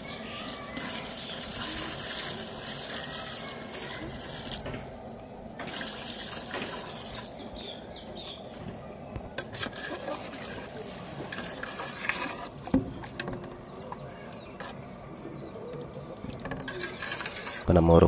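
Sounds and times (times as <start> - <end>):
water pouring into a pot: 0.4 - 4.6, 5.6 - 7.4.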